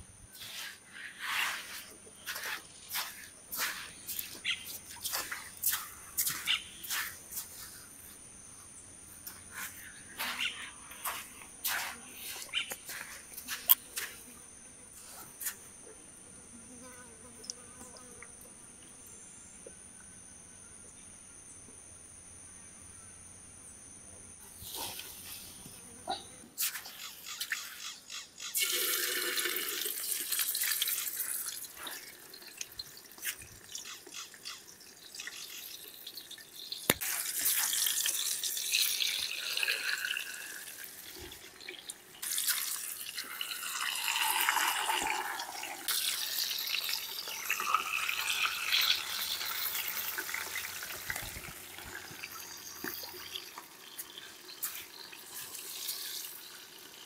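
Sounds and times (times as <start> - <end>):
water splashing and trickling: 0.4 - 8.0, 9.2 - 14.2, 28.5 - 57.0.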